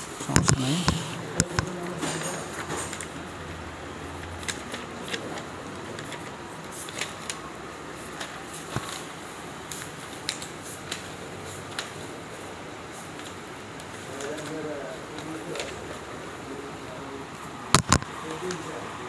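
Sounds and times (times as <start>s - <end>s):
steady background hum: 0.0s - 19.0s
paper rustling: 4.4s - 16.2s.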